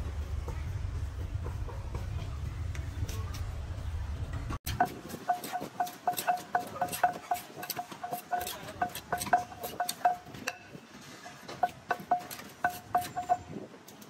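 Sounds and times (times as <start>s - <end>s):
wooden pestle pounding in clay mortar: 4.7s - 10.8s, 11.4s - 13.6s.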